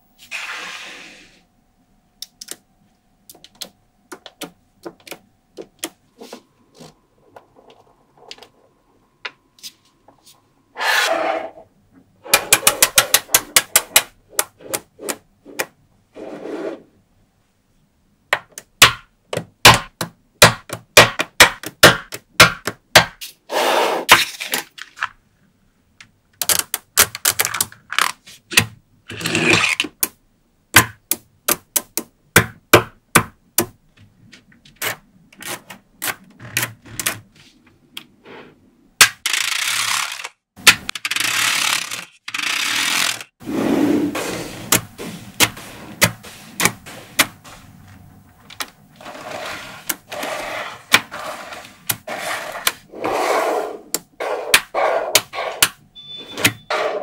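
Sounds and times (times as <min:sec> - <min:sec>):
balls rolling and rasping: 0:42.8 - 0:55.6.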